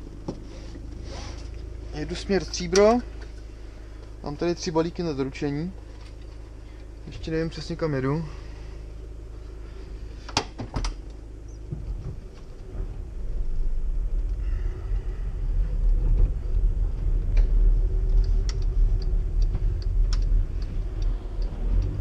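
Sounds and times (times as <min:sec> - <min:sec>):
road rumble: 0:00.0 - 0:22.0
van engine pulling away: 0:11.9 - 0:22.0.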